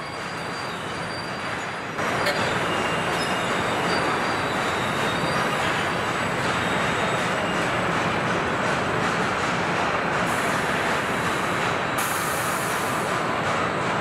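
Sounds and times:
rushing factory machinery: 0.0 - 14.0.

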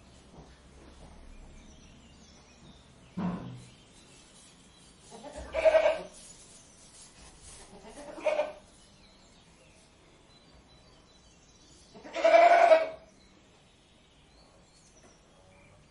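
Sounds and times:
goat bleating: 5.2 - 6.1, 7.7 - 8.6, 12.0 - 13.0.

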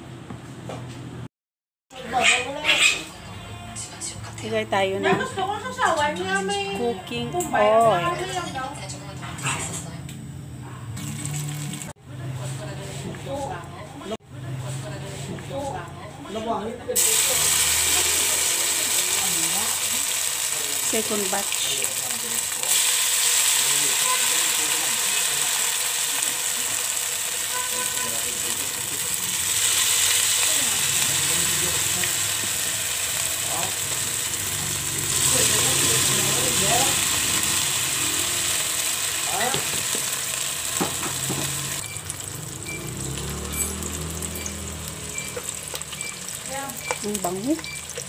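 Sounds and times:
fritters sizzling in oil: 17.0 - 48.0.

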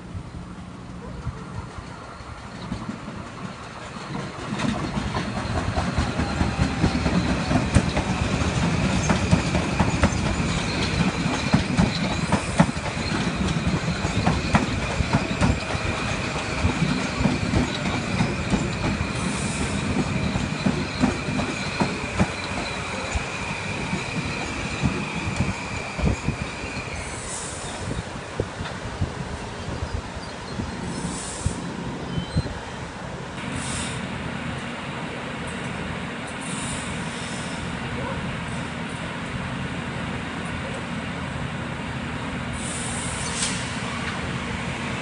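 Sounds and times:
train wheels clacking: 1.4 - 27.9.

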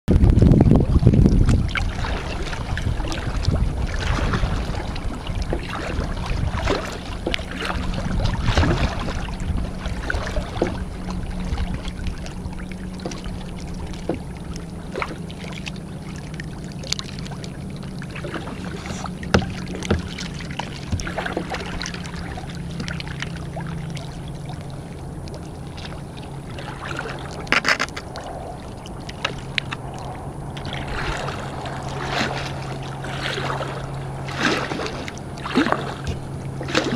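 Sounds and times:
water washing along hull: 0.1 - 36.9
paddle splashing in water: 0.8 - 36.9
sharp knocks: 19.3 - 20.2.

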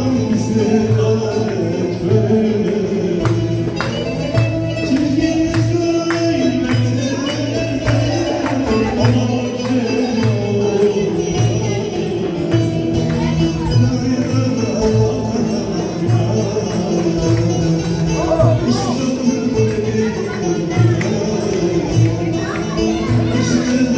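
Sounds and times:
hand percussion beat: 0.0 - 23.9
lute playing folk tune: 0.0 - 23.9.

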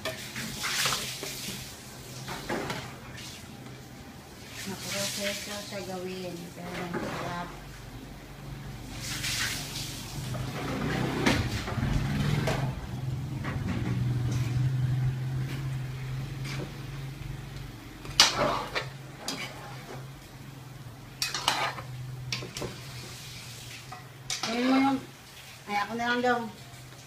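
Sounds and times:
ladle stirring in metal pan: 0.0 - 3.8, 4.4 - 7.8, 14.0 - 17.0, 17.6 - 20.4, 21.0 - 26.0
metal ladle scraping foil tray: 6.6 - 7.6, 18.1 - 19.9, 21.2 - 23.0, 24.3 - 25.0.

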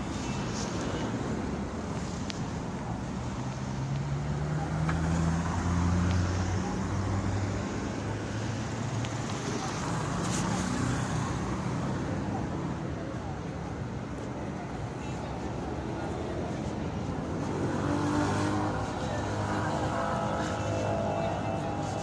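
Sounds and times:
road traffic passing: 0.0 - 22.0
vehicle engine drone: 16.6 - 22.0.

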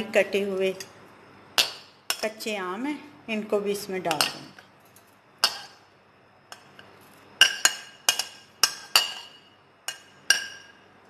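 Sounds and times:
spoon clinking against glass bowl: 7.4 - 10.8.

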